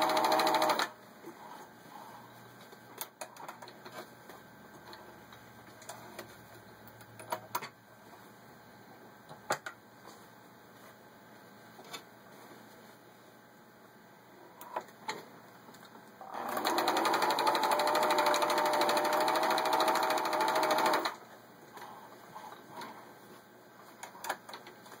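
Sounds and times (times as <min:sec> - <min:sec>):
sewing machine stitching: 0:00.0 - 0:00.9, 0:16.2 - 0:21.2.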